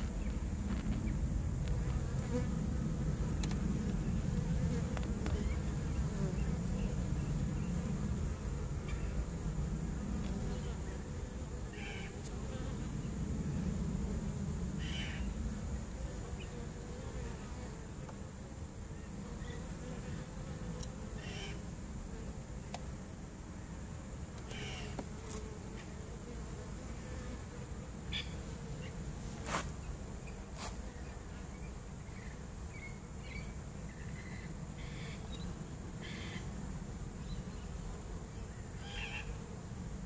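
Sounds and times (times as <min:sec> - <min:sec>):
bees buzzing: 0:00.0 - 0:22.6.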